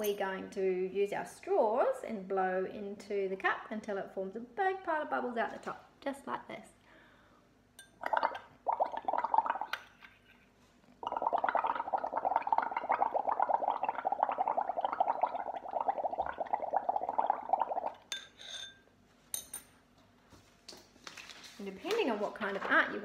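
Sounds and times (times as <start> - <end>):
bubbling through a straw: 8.0 - 10.0, 10.9 - 18.1.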